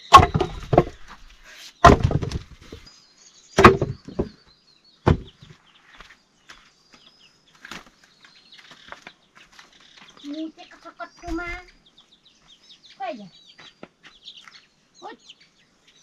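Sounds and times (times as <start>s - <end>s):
firewood being chopped: 0.0s - 2.9s, 3.6s - 4.4s, 5.0s - 5.5s
faint bird chirps: 2.6s - 16.0s.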